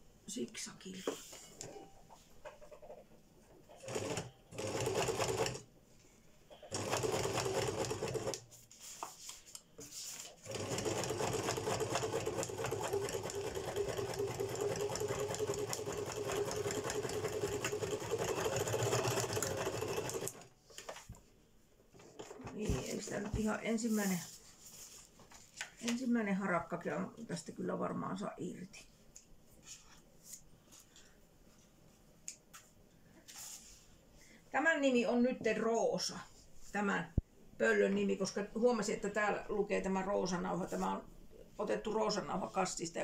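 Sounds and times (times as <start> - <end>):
sewing machine stitching: 3.8 - 5.6, 6.6 - 8.4, 10.4 - 20.5.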